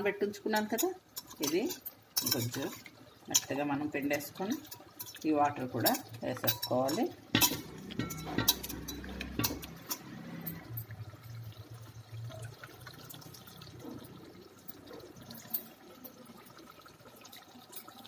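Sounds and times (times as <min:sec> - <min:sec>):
water trickling: 0:00.0 - 0:18.0
steel clinks: 0:05.9 - 0:11.0.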